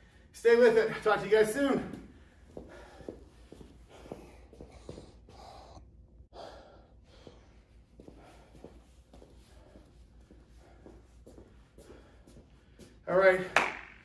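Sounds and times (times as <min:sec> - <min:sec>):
low room hum: 0:00.0 - 0:14.0
man breathing heavily: 0:02.0 - 0:13.1.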